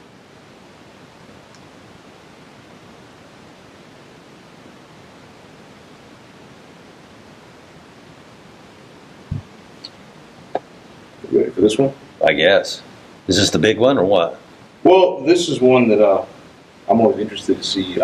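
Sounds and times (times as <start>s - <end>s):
room tone hiss: 0.0s - 18.0s
faint clicks: 1.5s - 1.7s
short low thump: 9.3s - 9.5s.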